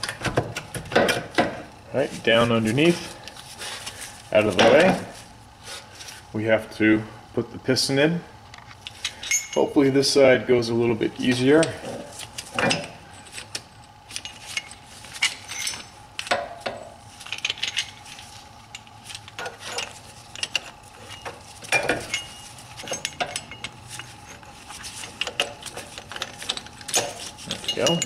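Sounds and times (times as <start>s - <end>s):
metallic clicks and clinks: 8.8s - 9.7s, 25.1s - 28.0s.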